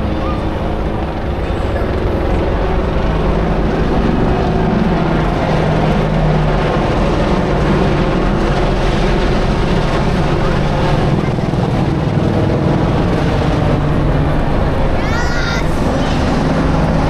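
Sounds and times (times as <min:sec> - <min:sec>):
helicopter rotor and turbine drone: 0:00.0 - 0:17.0.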